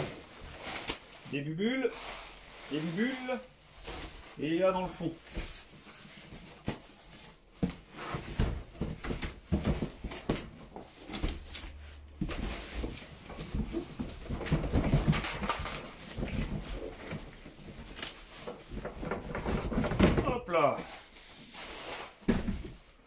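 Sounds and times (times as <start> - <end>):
cardboard scraping and rubbing: 21.0 - 22.8.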